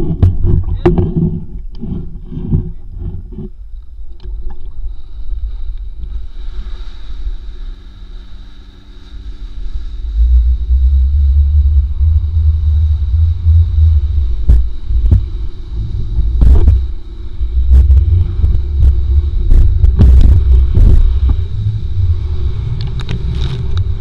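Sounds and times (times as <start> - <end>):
boat engine running: 0.0 - 24.0
rush of wind and water: 0.0 - 24.0.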